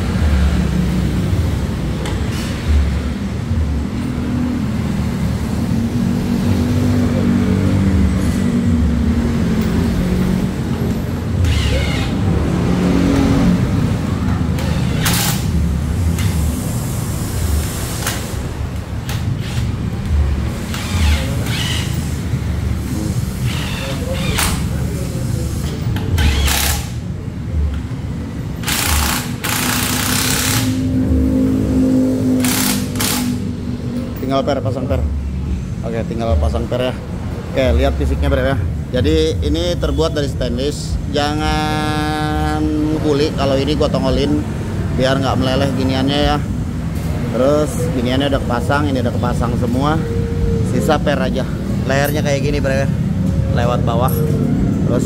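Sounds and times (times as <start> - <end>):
hissing rattling tool bursts: 11.4 - 12.3, 14.6 - 15.6, 20.6 - 27.1, 28.6 - 30.9, 32.4 - 33.5.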